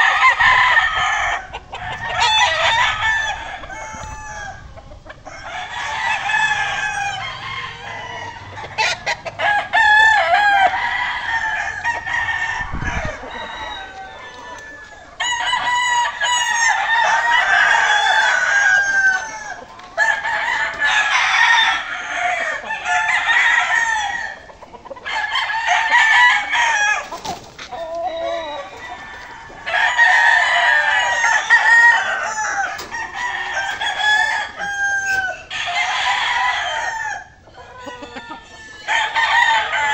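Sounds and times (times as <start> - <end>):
roosters crowing: 0.0 - 39.9.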